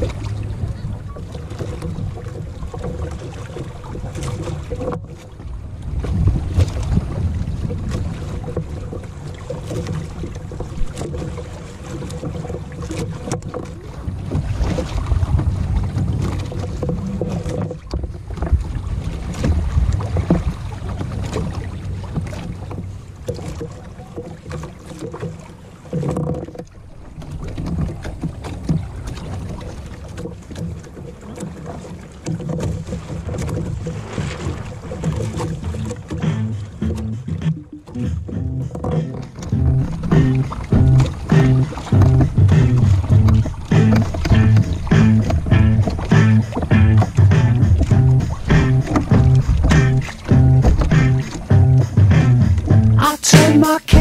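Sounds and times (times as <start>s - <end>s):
water splashing against hull: 0.0s - 54.0s.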